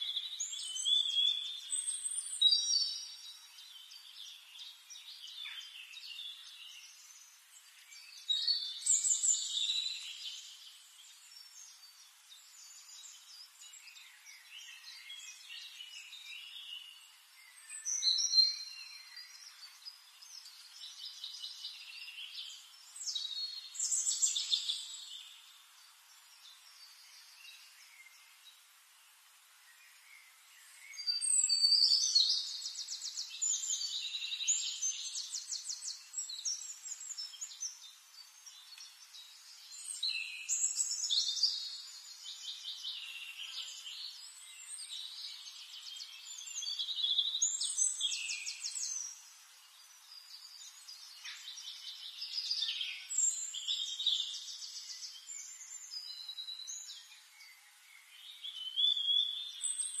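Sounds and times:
songbird warbling and trilling: 30.6s - 57.5s.

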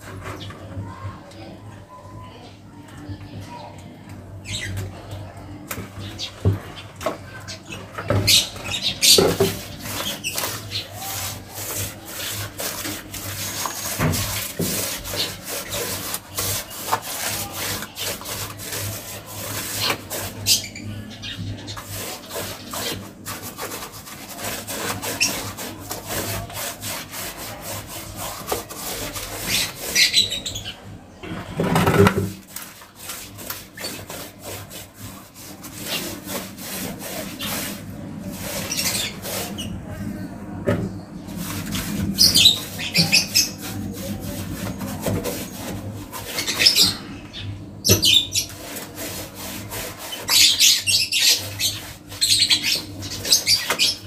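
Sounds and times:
paintbrush scrubbing on concrete: 0.0s - 1.6s, 4.4s - 54.0s.

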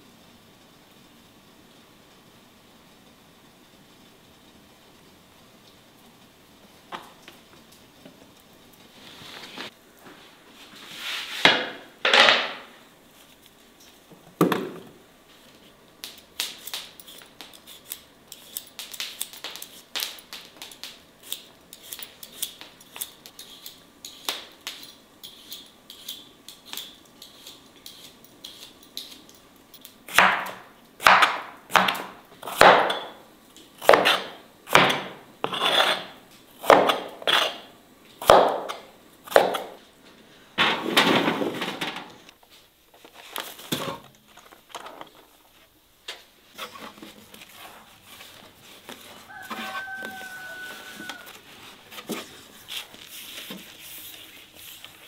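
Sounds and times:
kitchen handling clicks and knocks: 11.5s - 12.7s, 14.2s - 15.0s.

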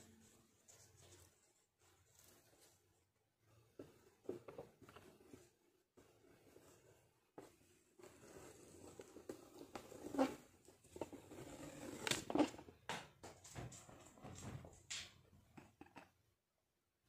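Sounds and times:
soft rustles: 0.0s - 12.2s.

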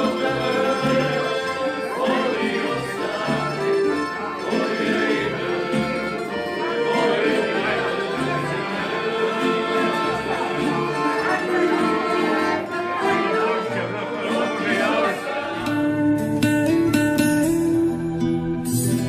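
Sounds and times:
instrumental music with bass line: 15.6s - 19.0s.

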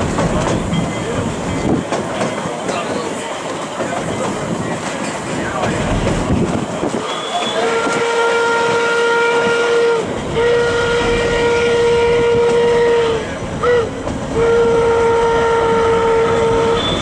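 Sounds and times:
moving train rumble: 0.0s - 17.0s
steam locomotive whistle: 7.0s - 17.0s.

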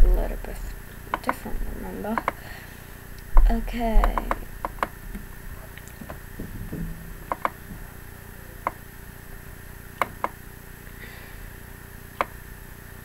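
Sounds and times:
faint steady hum: 0.0s - 13.0s
mouse buttons clicking: 1.1s - 1.5s, 2.1s - 2.4s, 4.0s - 4.9s, 7.3s - 7.6s, 10.0s - 10.4s, 12.2s - 12.4s.

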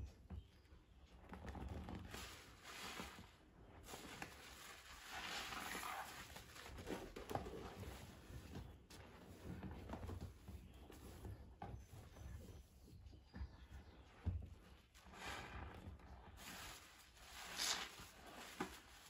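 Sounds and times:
sponges squelching in soapy foam: 2.0s - 9.7s, 14.9s - 19.0s.

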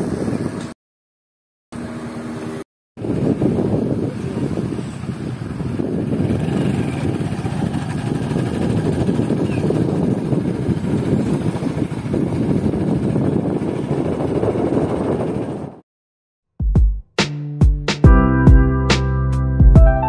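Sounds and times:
wind buffeting microphone: 0.0s - 0.8s, 1.8s - 15.8s
vehicle rumbling: 5.6s - 14.5s.

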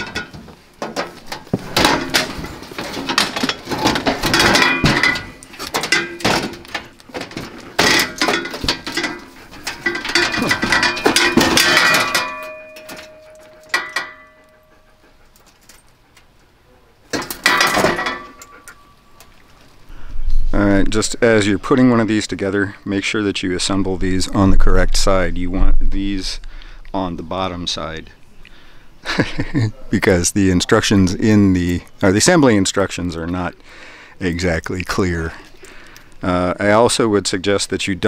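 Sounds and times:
sheet steel panels clanking: 0.0s - 14.6s, 17.1s - 18.8s
metal ringing tone: 8.0s - 14.9s.

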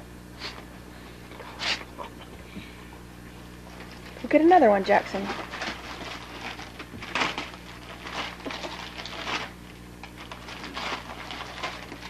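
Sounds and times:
wrapping paper rustling and tearing: 5.0s - 12.0s.

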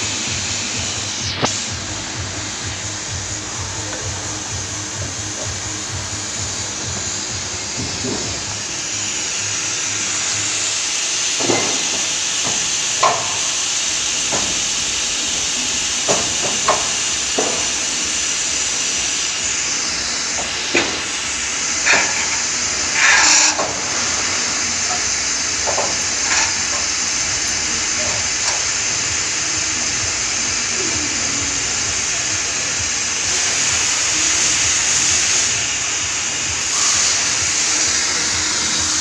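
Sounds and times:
hissing workshop noise: 0.0s - 39.0s
metal scrape: 21.9s - 23.6s.

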